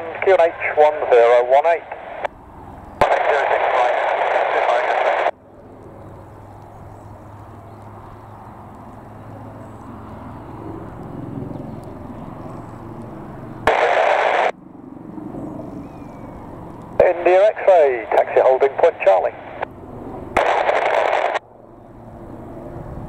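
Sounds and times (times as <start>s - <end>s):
radio hiss bursts: 0.0s - 2.3s, 3.0s - 5.4s, 13.6s - 14.6s, 17.0s - 19.7s, 20.4s - 21.4s
distant helicopter rumble: 0.0s - 23.0s.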